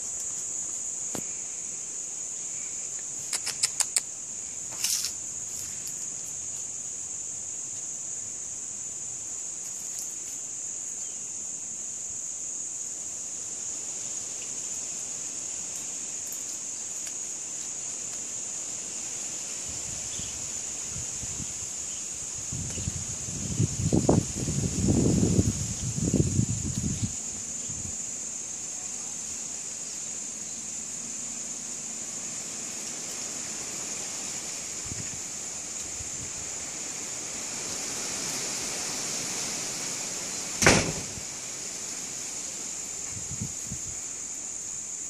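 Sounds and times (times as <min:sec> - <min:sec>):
high-pitched insect buzz: 0:00.0 - 0:38.5
sharp clicks: 0:03.2 - 0:04.1
short rustle: 0:04.7 - 0:06.1.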